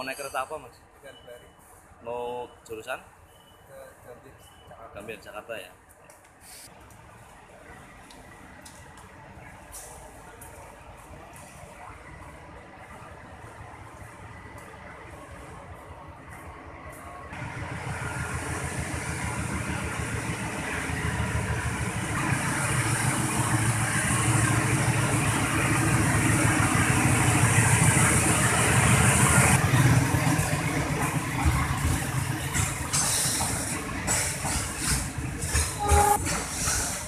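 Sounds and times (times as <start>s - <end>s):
train coaches rolling by: 0.0s - 37.0s
diesel train engine: 6.2s - 37.0s
knocks of train coaches: 29.8s - 37.0s.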